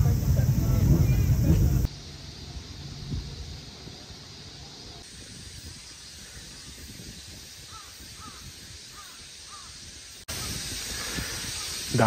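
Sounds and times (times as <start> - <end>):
outdoor background noise: 0.0 - 12.0
bird calling: 6.0 - 12.0.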